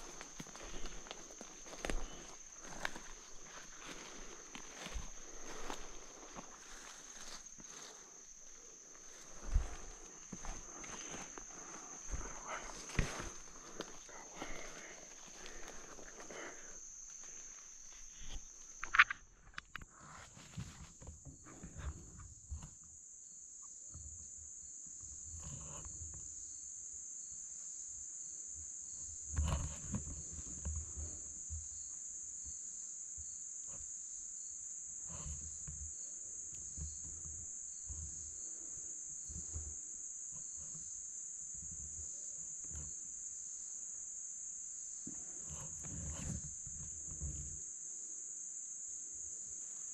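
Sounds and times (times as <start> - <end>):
high-pitched insect chorus: 0.0 - 49.9
low thuds and rustles: 9.1 - 14.6.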